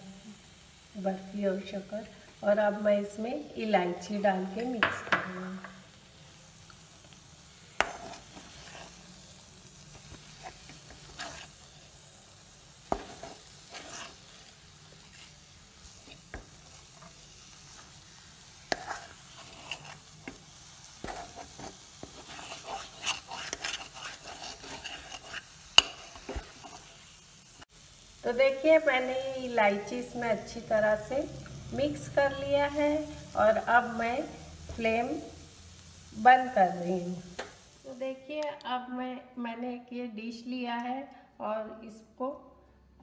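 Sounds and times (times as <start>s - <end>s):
soft sizzle of ghee: 0.0s - 43.0s
spoon scraping thick mixture in pan: 7.8s - 9.2s, 9.9s - 12.0s, 12.8s - 27.1s.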